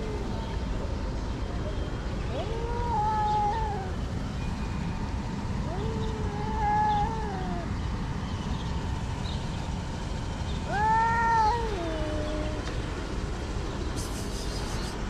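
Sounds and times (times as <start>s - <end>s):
cat meowing: 2.3s - 4.0s, 5.6s - 7.7s, 10.7s - 12.7s.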